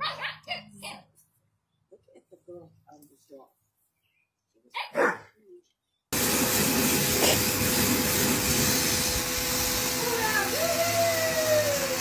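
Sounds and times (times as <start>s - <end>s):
pressure washer spraying water: 6.2s - 12.0s
pump humming: 6.2s - 12.0s.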